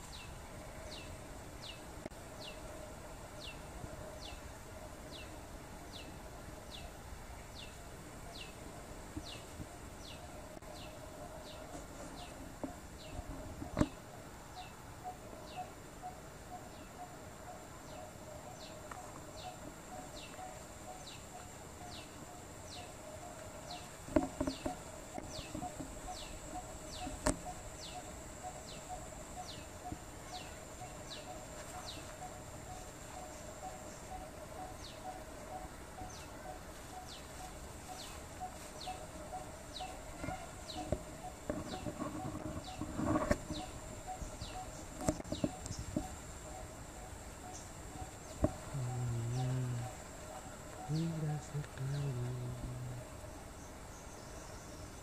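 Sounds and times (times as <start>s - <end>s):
high insect drone: 0.0s - 55.0s
low rapid pulsing call: 46.0s - 53.2s.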